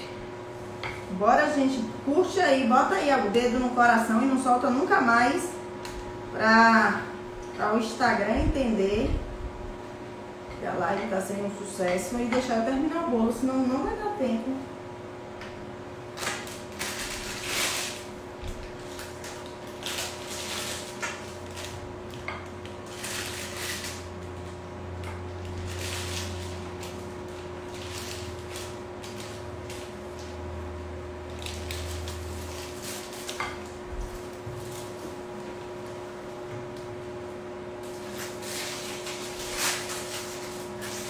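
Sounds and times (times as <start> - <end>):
steady hum: 0.0 - 41.0
plastic bag rustling: 16.2 - 21.8, 22.8 - 24.1, 25.4 - 30.0, 31.4 - 33.4, 37.8 - 41.0.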